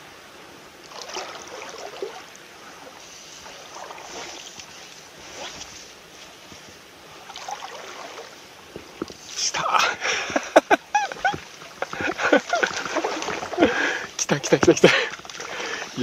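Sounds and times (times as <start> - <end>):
fly line swishing through air: 1.0 - 6.4.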